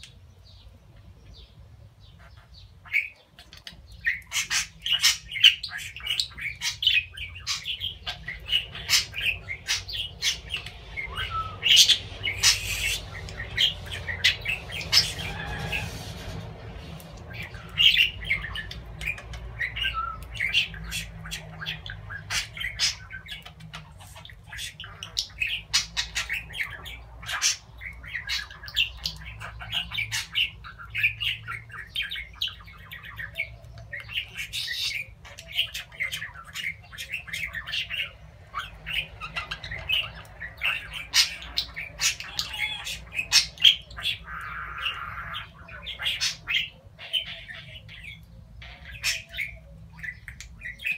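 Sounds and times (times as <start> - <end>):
budgerigar chattering: 34.0 - 50.9.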